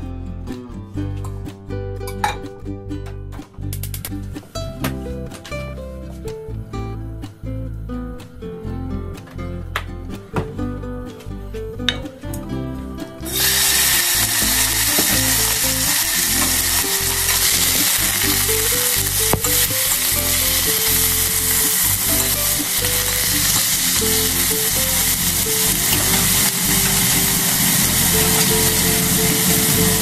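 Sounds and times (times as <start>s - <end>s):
chicken sizzling in hot pot: 13.2s - 30.0s.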